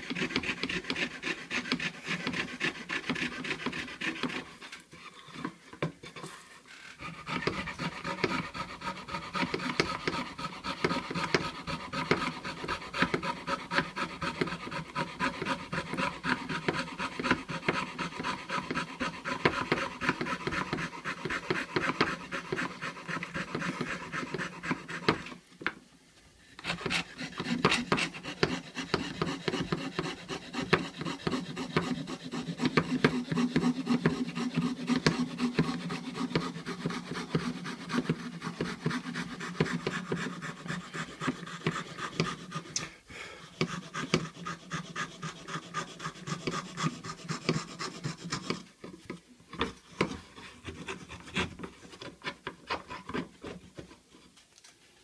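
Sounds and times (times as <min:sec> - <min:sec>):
fretsaw cutting wood: 0:00.0 - 0:04.6, 0:07.0 - 0:25.4, 0:26.6 - 0:42.8.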